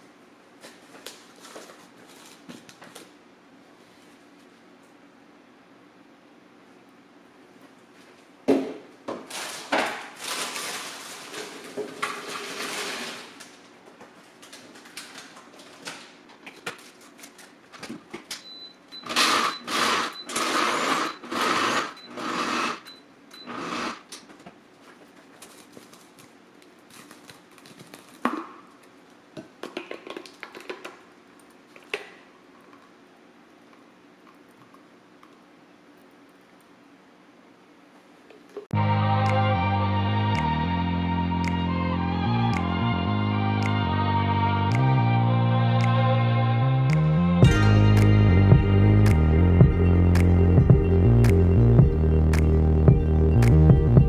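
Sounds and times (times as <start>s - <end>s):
crushed snack chips rustling: 9.3s - 13.6s.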